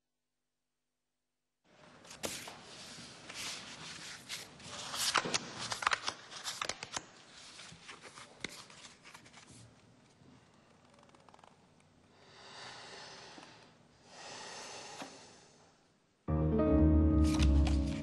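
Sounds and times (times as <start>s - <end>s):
playing cards shuffling: 2.0s - 9.7s, 17.1s - 18.0s.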